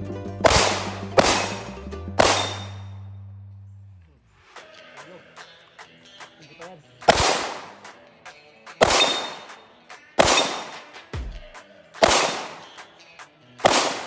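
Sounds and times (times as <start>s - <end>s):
rifle shots with echo: 0.4s - 1.6s, 2.2s - 2.8s, 7.0s - 7.9s, 8.8s - 12.8s, 13.6s - 14.0s
faint sharp cracks: 0.4s - 2.9s, 7.0s - 14.0s.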